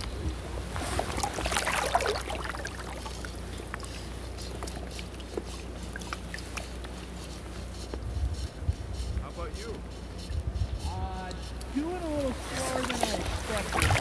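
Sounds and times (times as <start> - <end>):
water lapping against boat hull: 0.0 - 9.1, 11.4 - 14.0
steady low rumble: 0.0 - 14.0
water dripping: 1.0 - 7.0.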